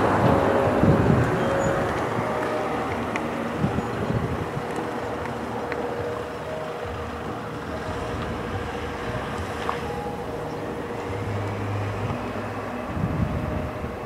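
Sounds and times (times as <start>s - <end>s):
distant jet engines running: 0.0s - 14.0s
wind on microphone: 0.0s - 14.0s.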